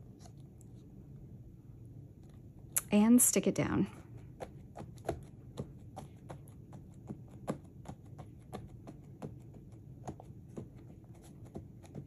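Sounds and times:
hands patting and rubbing paper: 0:03.8 - 0:12.0.

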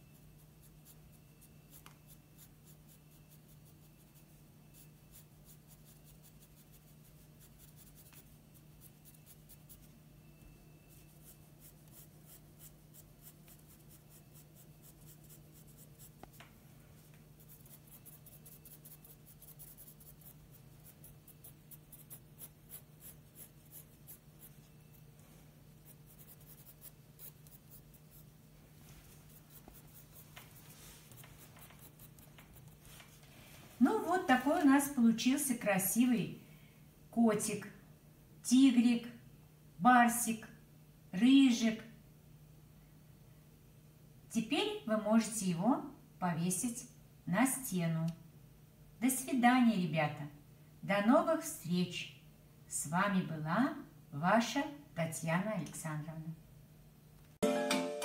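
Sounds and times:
pencil scratching on paper: 0:00.0 - 0:09.9, 0:10.9 - 0:16.4, 0:17.4 - 0:25.1, 0:25.8 - 0:28.3, 0:29.2 - 0:32.8.

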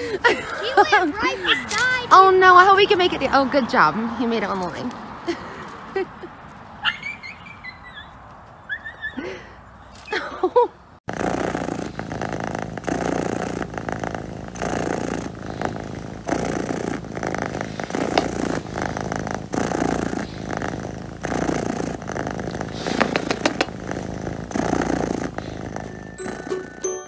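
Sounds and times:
cat purring: 0:11.0 - 0:27.0.

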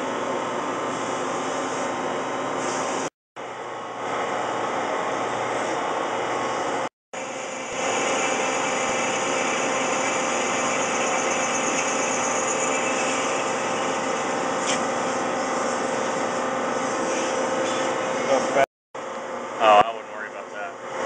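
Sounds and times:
lathe machining noise: 0:07.2 - 0:18.7.

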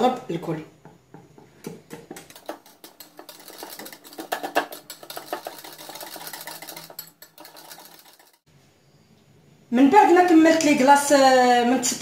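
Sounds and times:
whisk clicking against bowl: 0:01.9 - 0:08.5.

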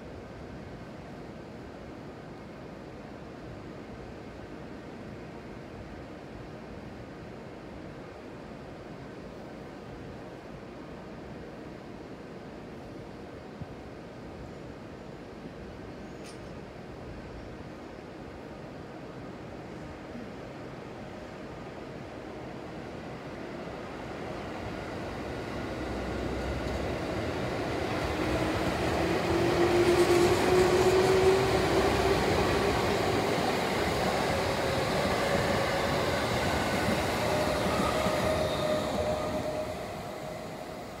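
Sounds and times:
rail noise: 0:15.0 - 0:41.0
electric train passing: 0:22.0 - 0:41.0.

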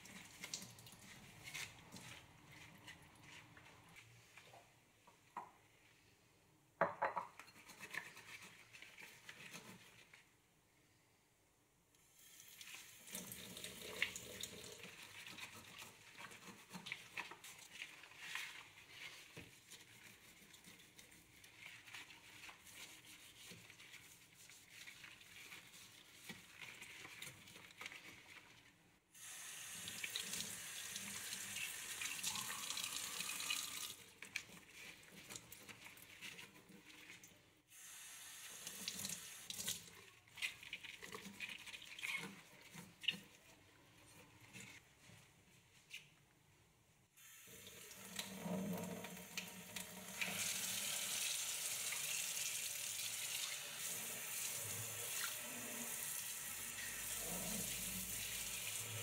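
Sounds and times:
gloved hands rubbing faucet: 0:00.0 - 0:04.5, 0:07.4 - 0:10.4, 0:14.8 - 0:28.8, 0:30.1 - 0:37.5, 0:39.6 - 0:46.2
tap water running into steel sink: 0:29.7 - 0:34.0, 0:47.5 - 0:59.0.

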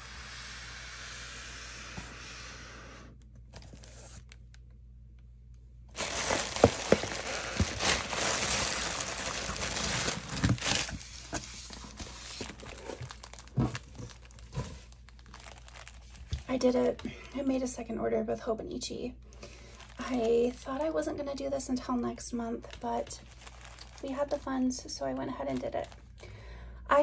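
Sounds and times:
plastic packaging crinkling: 0:03.5 - 0:04.7, 0:05.9 - 0:17.5, 0:19.4 - 0:21.0, 0:22.6 - 0:26.2.

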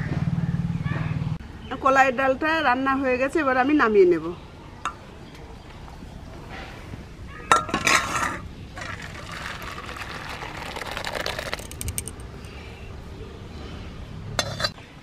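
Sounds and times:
thick lentils pouring into bowl: 0:08.8 - 0:12.2.

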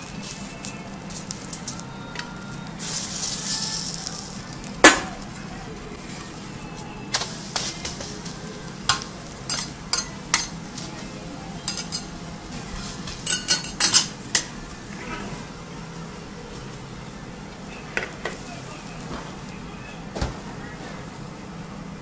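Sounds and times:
food sizzling on a griddle: 0:00.0 - 0:19.5
spatula clinking on metal griddle: 0:08.9 - 0:10.6, 0:11.6 - 0:12.2, 0:13.1 - 0:14.6.

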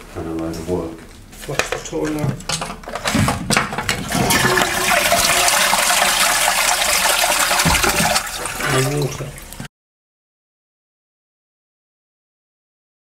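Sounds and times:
toilet flushing: 0:03.2 - 0:09.7
knock: 0:07.6 - 0:08.1.

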